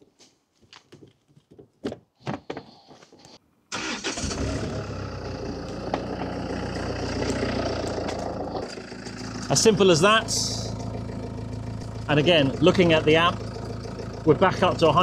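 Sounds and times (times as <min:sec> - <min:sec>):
car engine starting and idling: 0:03.7 - 0:15.0.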